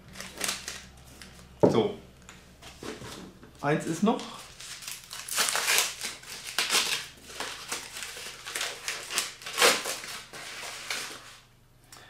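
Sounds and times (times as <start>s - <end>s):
packing paper rustling: 0.0s - 1.5s, 4.1s - 11.5s.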